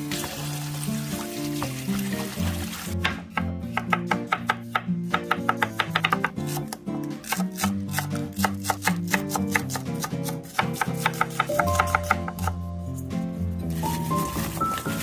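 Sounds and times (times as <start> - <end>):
background music: 0.0 - 15.0
knife chopping on wooden board: 3.0 - 12.6.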